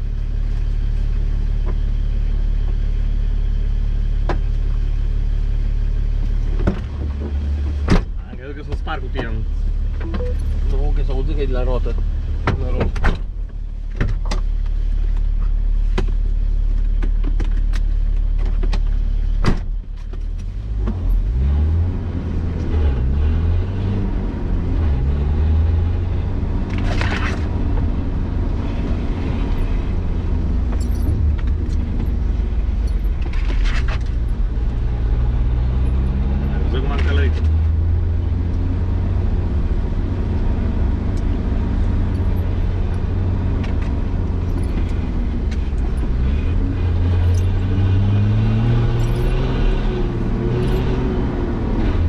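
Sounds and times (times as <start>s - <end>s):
vehicle knocks and rattles: 6.5s - 10.1s, 11.9s - 14.7s
vehicle engine revving: 20.6s - 52.0s.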